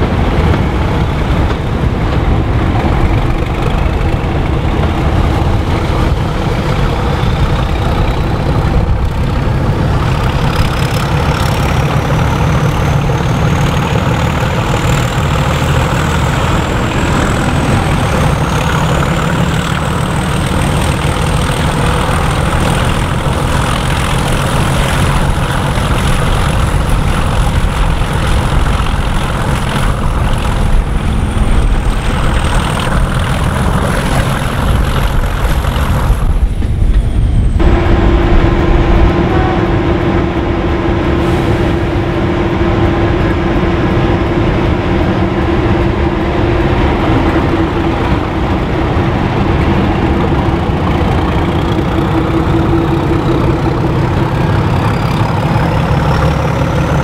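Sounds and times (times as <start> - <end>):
diesel locomotive engine running: 0.0 - 57.0
steady hum: 16.3 - 55.8.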